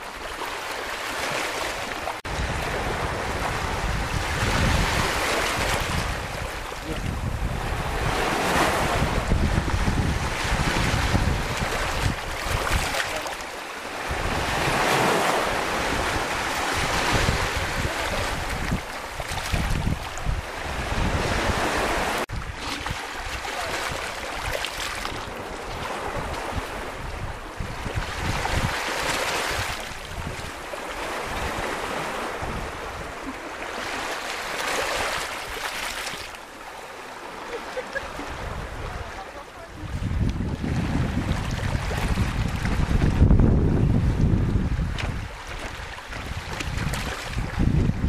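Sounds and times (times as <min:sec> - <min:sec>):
waves washing over pebbles: 0:00.0 - 0:27.0, 0:27.7 - 0:43.3, 0:44.0 - 0:48.0
wind buffeting microphone: 0:02.2 - 0:13.0, 0:13.9 - 0:34.0, 0:38.0 - 0:48.0.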